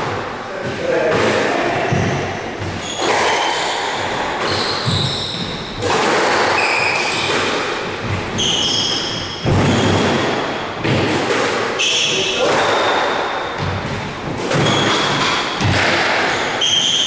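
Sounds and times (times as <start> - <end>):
squash ball thudding off walls: 0.6 - 11.8, 12.4 - 16.7
shoes squeaking on wooden floor: 1.8 - 7.3, 7.9 - 10.0.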